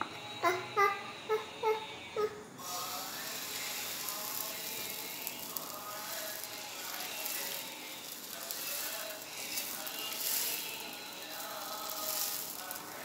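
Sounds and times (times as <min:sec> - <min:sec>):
batter sizzling on a pan: 0:02.6 - 0:13.0.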